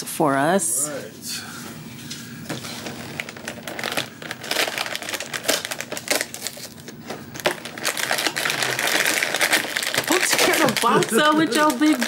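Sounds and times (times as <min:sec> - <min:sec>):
cardboard box crinkling: 0:02.8 - 0:06.8, 0:07.5 - 0:12.0.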